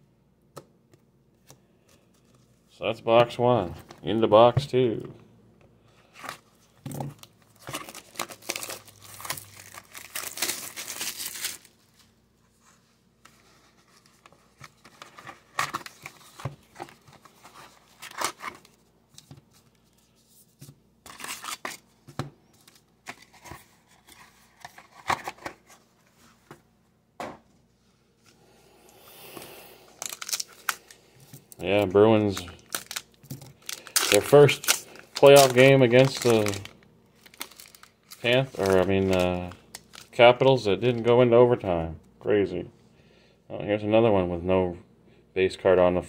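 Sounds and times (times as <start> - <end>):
cellophane wrap tearing: 7.2 - 11.7, 21.1 - 21.8, 30.0 - 31.0, 31.7 - 40.2.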